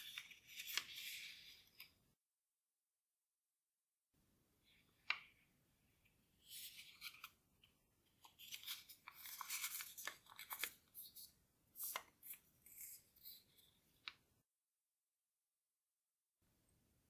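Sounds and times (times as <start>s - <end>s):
paper rustling and crinkling: 0.0s - 2.0s, 6.4s - 7.4s, 8.2s - 13.5s.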